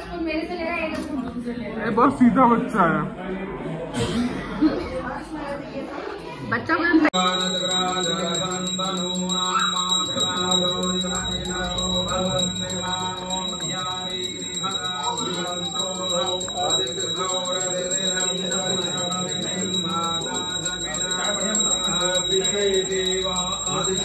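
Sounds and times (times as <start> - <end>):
bell ringing rapidly: 7.2 - 24.0.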